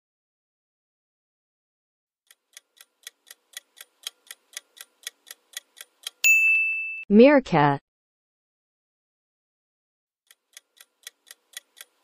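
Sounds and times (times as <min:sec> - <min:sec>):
clock-like timer ticks: 0:02.3 - 0:06.2, 0:10.3 - 0:12.0
bell ding: 0:06.2 - 0:07.1.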